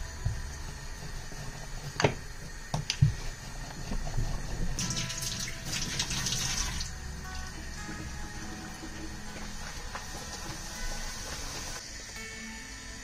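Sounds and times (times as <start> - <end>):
soft background music: 0.0 - 13.0
kitchen tap running: 3.8 - 11.8.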